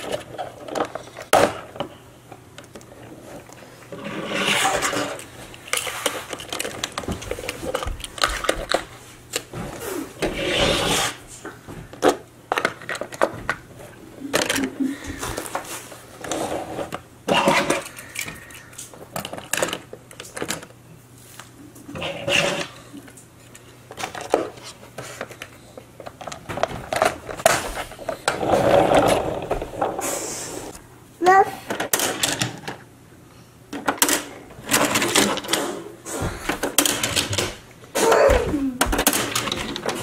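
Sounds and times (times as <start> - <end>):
toy cars scraping into slots: 3.9 - 6.7, 10.2 - 11.2, 16.2 - 18.6, 21.9 - 22.9, 28.1 - 30.8
toy cars clicking and clattering: 4.1 - 9.4.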